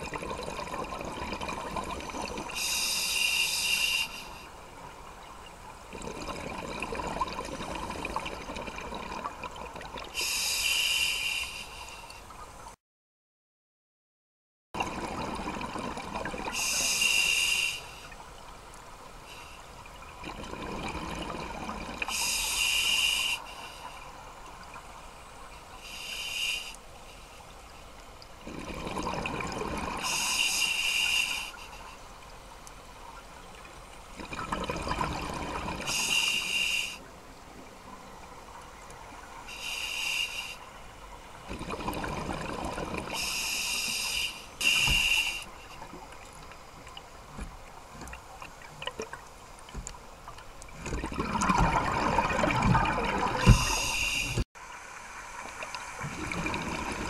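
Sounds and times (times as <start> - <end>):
exhaled bubbles rumbling: 0.0 - 2.6, 5.9 - 10.1, 14.8 - 16.6, 20.1 - 22.1, 28.4 - 30.1, 34.2 - 35.9, 41.4 - 43.2, 50.7 - 54.4, 56.0 - 57.0
regulator hissing on inhalation: 2.6 - 4.3, 16.6 - 18.0, 22.1 - 23.6, 25.9 - 26.8, 30.0 - 31.6, 35.9 - 37.0, 39.5 - 40.6, 43.2 - 45.6, 53.5 - 54.4.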